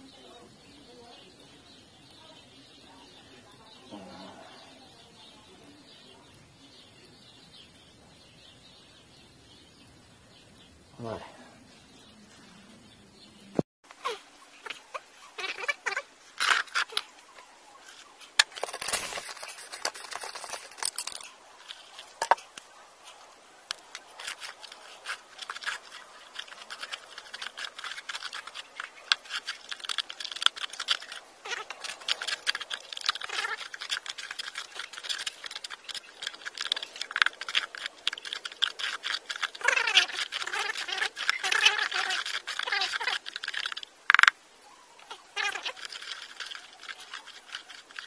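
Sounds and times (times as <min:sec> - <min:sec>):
mortar scraped in a bucket: 0:17.9 - 0:23.2, 0:23.9 - 0:43.9.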